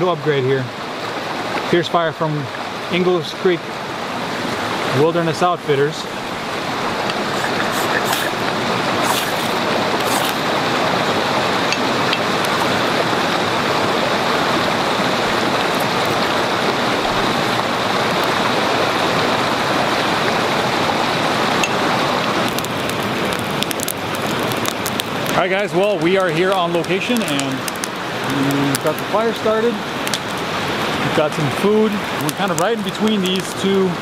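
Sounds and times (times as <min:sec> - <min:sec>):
stream rushing: 0:00.0 - 0:34.0
ferro rod scraping: 0:07.0 - 0:10.5.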